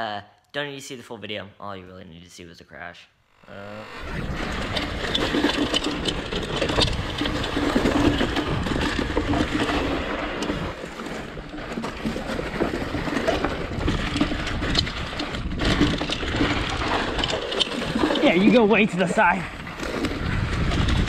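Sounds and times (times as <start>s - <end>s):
wind rush over microphone: 3.7s - 10.8s, 12.4s - 21.0s
tyres rolling on dirt: 4.2s - 21.0s
bike clicks and rattles: 4.3s - 21.0s.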